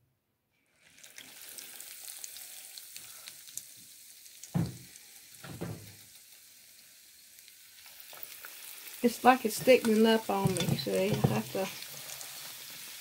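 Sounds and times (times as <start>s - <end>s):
food sizzling in oil: 0.7s - 13.0s
dull knocks: 4.6s - 4.8s, 5.4s - 5.9s.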